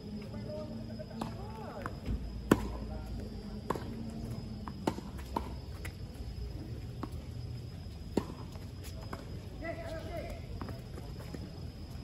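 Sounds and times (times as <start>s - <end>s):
racquets striking tennis ball: 1.2s - 2.9s, 8.1s - 8.5s.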